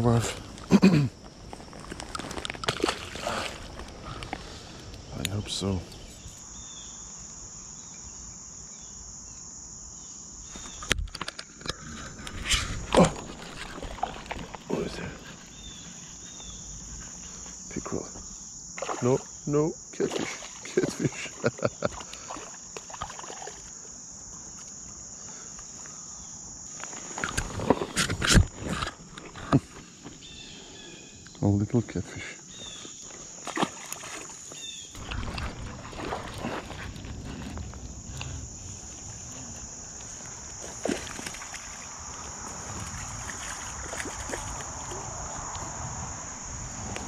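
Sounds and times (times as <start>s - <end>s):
insects droning: 0.0s - 47.0s
fish splashing: 12.8s - 14.5s, 18.8s - 19.4s, 20.0s - 23.7s, 33.4s - 37.1s, 40.6s - 42.2s.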